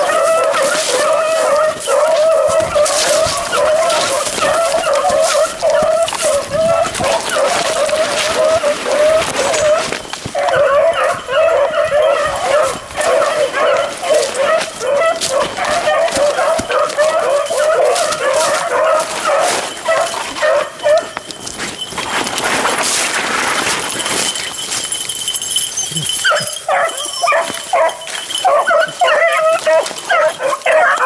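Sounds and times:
dogs barking: 0:00.0 - 0:22.0, 0:24.2 - 0:31.0
rustling through dry leaves: 0:00.0 - 0:31.0.

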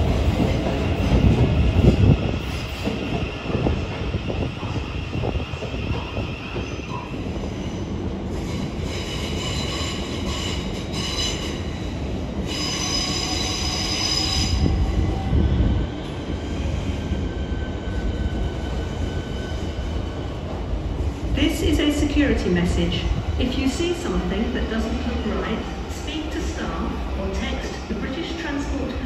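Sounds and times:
train rumbling on rails: 0:00.0 - 0:29.0
train wheels squealing: 0:04.6 - 0:11.6, 0:12.5 - 0:15.2.

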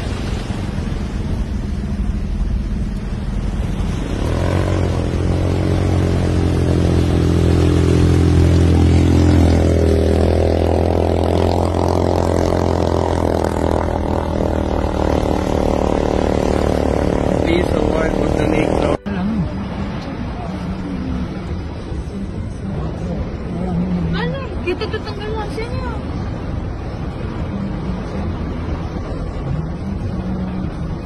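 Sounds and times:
rushing water and wind: 0:00.0 - 0:31.0
vehicle engine running: 0:00.7 - 0:23.5.

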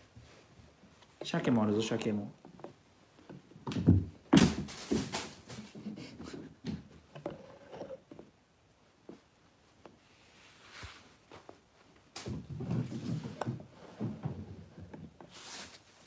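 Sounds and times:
plastic bags rustling: 0:15.3 - 0:16.0.

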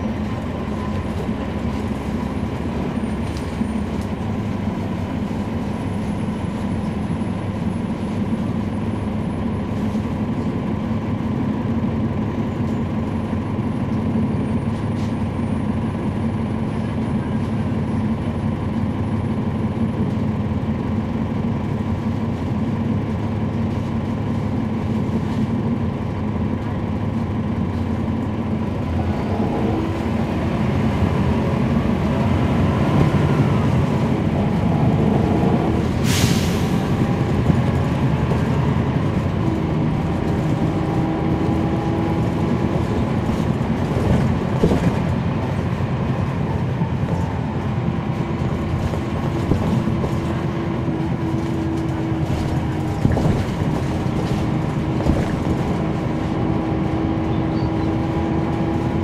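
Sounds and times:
bus diesel engine droning: 0:00.0 - 0:59.0
short hiss of air: 0:36.0 - 0:36.8.

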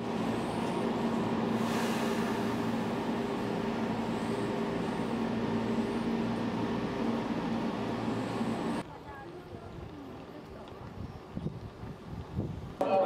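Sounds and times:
train running hum: 0:00.0 - 0:10.5
brief hiss: 0:01.6 - 0:02.9.

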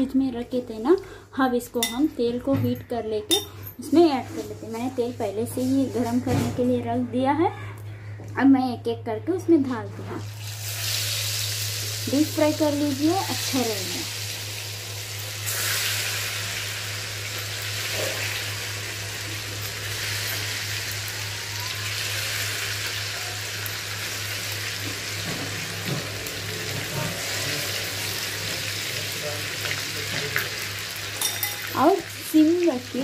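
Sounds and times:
oil sizzling deep-frying fish: 0:10.2 - 0:33.0.

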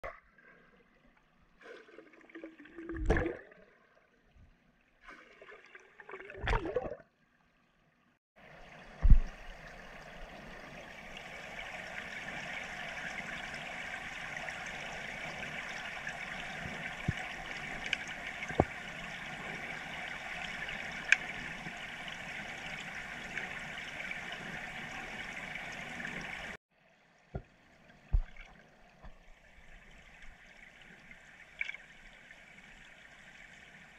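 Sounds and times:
underwater exhaled air bubbles: 0:01.6 - 0:03.8, 0:05.2 - 0:07.0.

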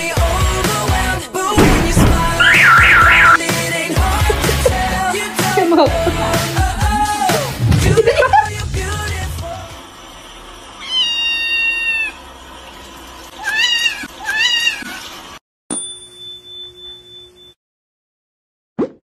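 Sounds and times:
kitten meowing: 0:10.8 - 0:12.2, 0:13.4 - 0:15.0.

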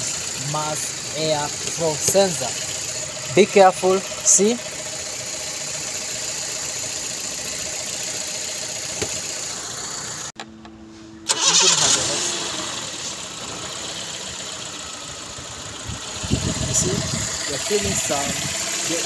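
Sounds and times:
petrol engine idling rough: 0:00.0 - 0:10.3, 0:11.2 - 0:19.0.

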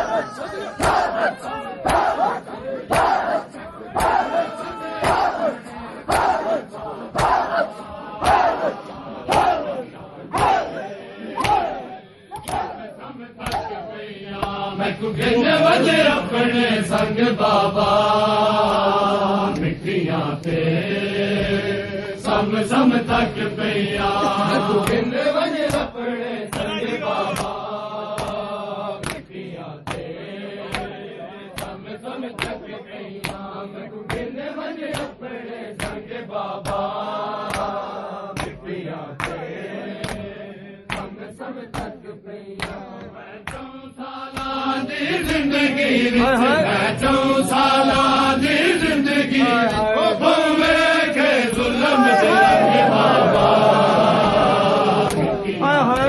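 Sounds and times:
men chanting a lament: 0:00.0 - 0:56.0
open-hand chest slaps: 0:00.8 - 0:01.2, 0:01.8 - 0:02.3, 0:02.9 - 0:03.3, 0:04.0 - 0:04.3, 0:05.0 - 0:05.4, 0:06.1 - 0:06.4, 0:07.2 - 0:08.6, 0:09.3 - 0:09.7, 0:10.4 - 0:10.7, 0:11.4 - 0:12.8, 0:13.4 - 0:13.8, 0:24.8 - 0:25.9, 0:27.3 - 0:27.6, 0:29.0 - 0:29.3, 0:29.9 - 0:30.1, 0:30.7 - 0:30.9, 0:32.4 - 0:32.6, 0:33.2 - 0:33.4, 0:34.1 - 0:34.3, 0:34.9 - 0:35.2, 0:36.6 - 0:37.8, 0:38.4 - 0:38.6, 0:40.9 - 0:41.1.

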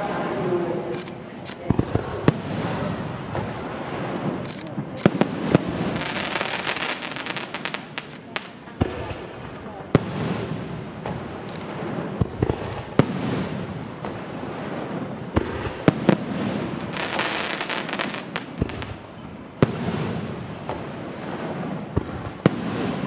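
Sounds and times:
firework crackling: 0:00.0 - 0:23.0
firework shells bursting: 0:01.0 - 0:23.0.

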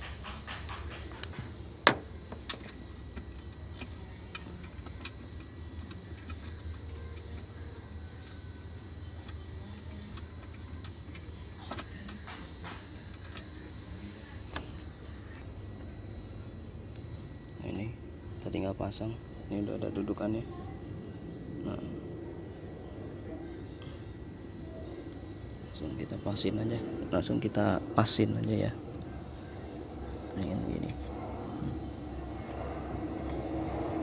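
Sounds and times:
parts clicking and tapping: 0:00.0 - 0:07.6, 0:09.2 - 0:13.8
low steady hum: 0:00.0 - 0:34.0.

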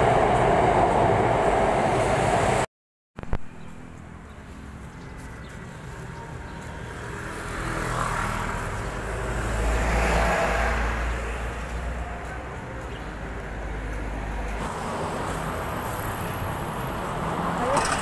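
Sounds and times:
road traffic passing: 0:00.0 - 0:02.7, 0:03.3 - 0:18.0
motorbike: 0:14.4 - 0:18.0.

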